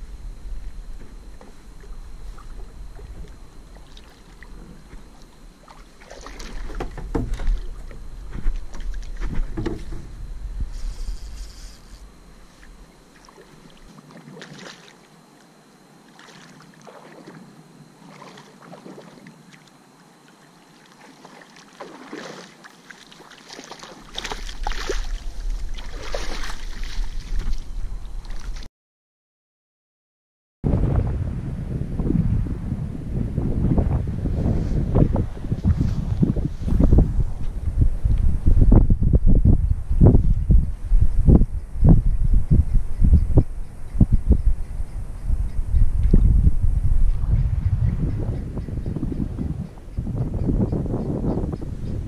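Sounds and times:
wind rumble on microphone: 0:00.0 - 0:13.9, 0:24.1 - 0:28.7, 0:30.6 - 0:52.0
water splashing and sloshing: 0:01.0 - 0:10.1, 0:12.5 - 0:15.2, 0:16.0 - 0:28.7.

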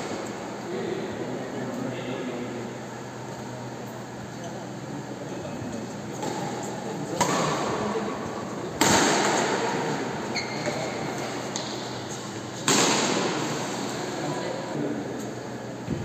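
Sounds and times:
racket hitting shuttlecock: 0:08.8 - 0:09.6, 0:12.6 - 0:13.5.

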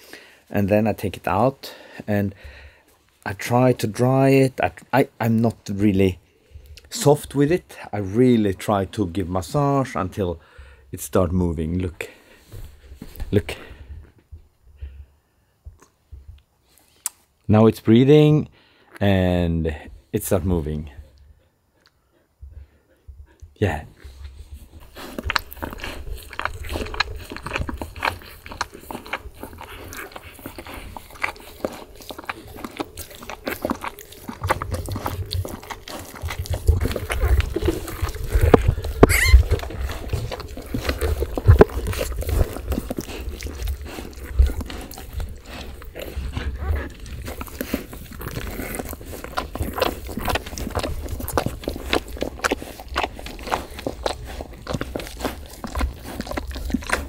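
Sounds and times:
dog licking and snuffling: 0:23.3 - 0:57.0.

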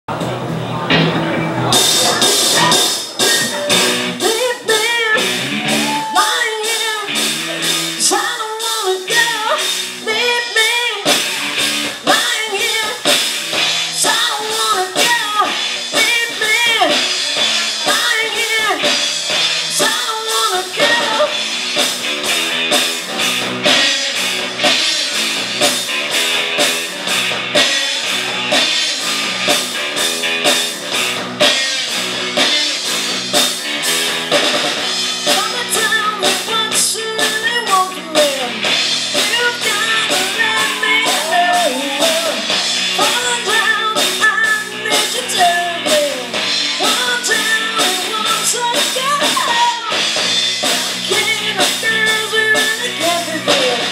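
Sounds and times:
bass guitar: 0:00.0 - 0:53.9
drum kit beat: 0:00.1 - 0:53.9
electric guitars: 0:00.1 - 0:53.9
woman singing: 0:04.2 - 0:07.3, 0:08.0 - 0:11.2, 0:12.0 - 0:13.2, 0:14.0 - 0:17.1, 0:17.8 - 0:19.0, 0:19.7 - 0:21.4, 0:35.2 - 0:53.9.

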